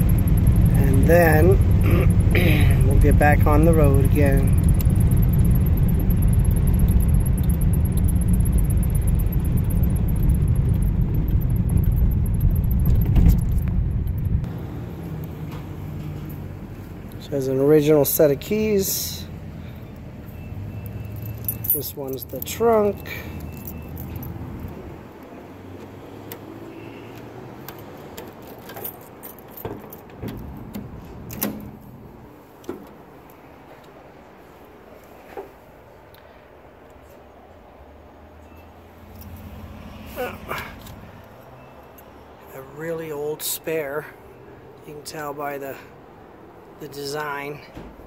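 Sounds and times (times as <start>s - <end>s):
keys jingling: 0.0s - 14.4s, 20.0s - 25.0s, 27.1s - 31.9s
car engine and road noise: 0.0s - 48.0s.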